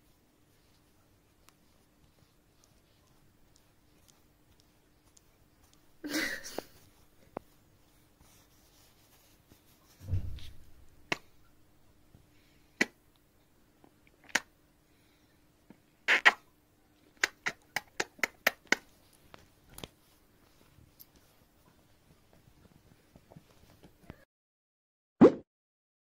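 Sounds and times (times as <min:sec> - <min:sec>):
dull bump: 0:10.0 - 0:11.2
lip-smacking kiss sounds: 0:14.2 - 0:14.5, 0:16.1 - 0:16.4, 0:17.2 - 0:18.9.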